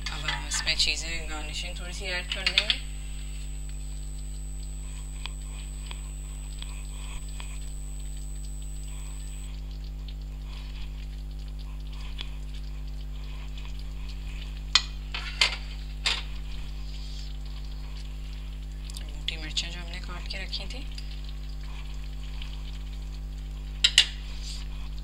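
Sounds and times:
low hum: 0:00.0 - 0:10.0
curry sizzling in a pan: 0:00.0 - 0:25.0.

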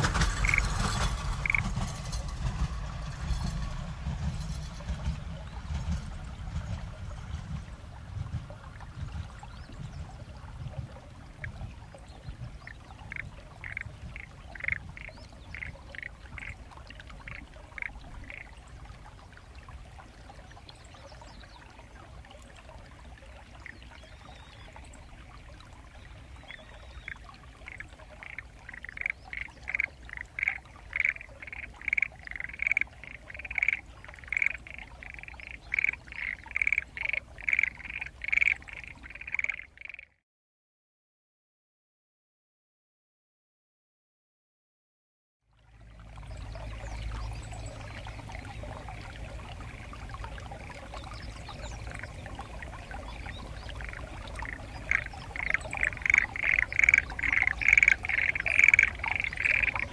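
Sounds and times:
frogs croaking: 0:00.4 - 0:01.7, 0:12.4 - 0:18.8, 0:23.2 - 0:40.2, 0:45.9 - 0:59.9.

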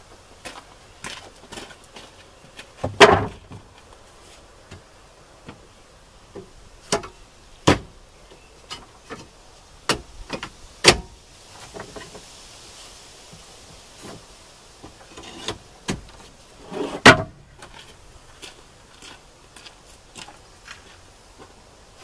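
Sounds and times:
wooden boards knocking: 0:02.8 - 0:03.7.

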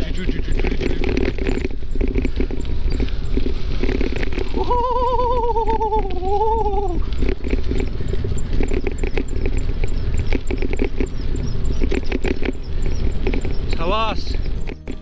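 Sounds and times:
rapid scattered clicks and knocks: 0:00.0 - 0:04.6
steady low rumble: 0:00.0 - 0:15.0
animal's long wavering call: 0:04.5 - 0:07.1.

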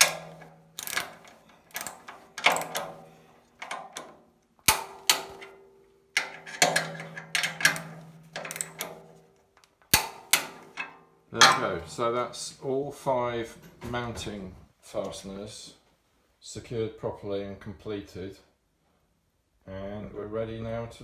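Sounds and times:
ratchet wrench clicking: 0:00.0 - 0:05.5, 0:06.2 - 0:08.9.

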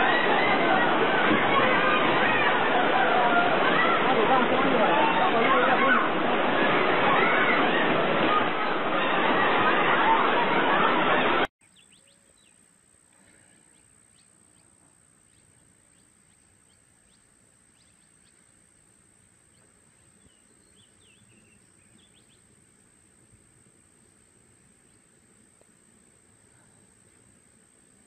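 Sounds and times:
bird chirps: 0:11.6 - 0:12.6, 0:19.2 - 0:22.5.

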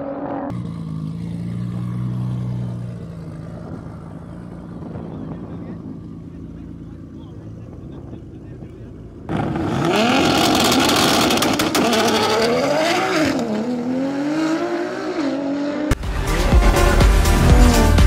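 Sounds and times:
drag racing car accelerating: 0:00.0 - 0:18.0
music with heavy bass: 0:15.9 - 0:18.0.

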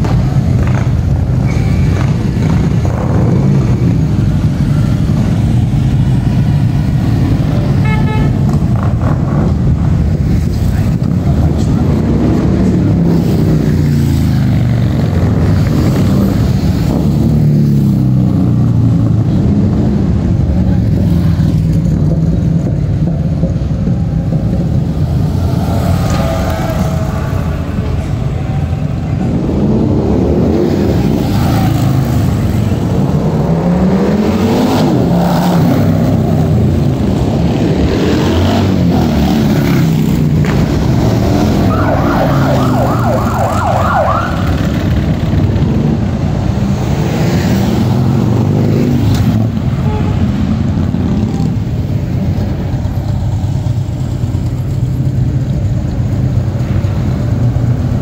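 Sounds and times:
motorcycles riding past: 0:00.0 - 0:58.0
siren yelping: 0:41.3 - 0:44.8.

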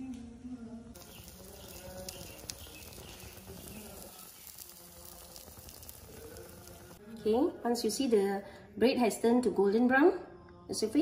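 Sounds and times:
buns sizzling on griddle: 0:01.0 - 0:07.0
tiny crackles: 0:01.0 - 0:07.0.

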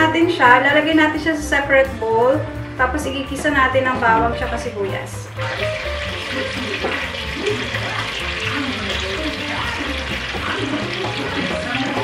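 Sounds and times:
background music with steady beat: 0:00.0 - 0:12.0
oil sizzling in a frying pan: 0:04.5 - 0:12.0.

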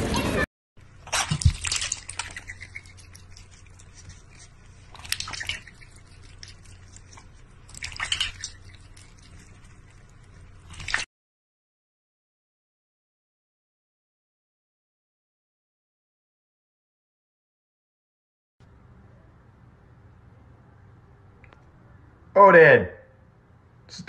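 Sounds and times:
water dripping: 0:00.8 - 0:11.1
cat splashing water in metal bowl: 0:00.9 - 0:11.1
water sloshing: 0:00.9 - 0:11.1.

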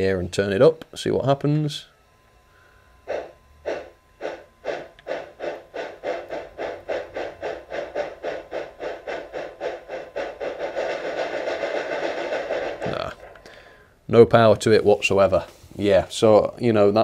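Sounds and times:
model steam locomotive chuffs: 0:03.0 - 0:13.8.

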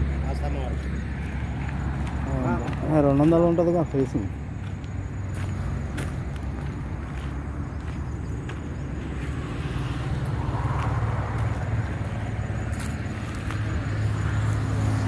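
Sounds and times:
highway traffic: 0:00.0 - 0:15.0
vehicle passing by: 0:00.0 - 0:15.0.

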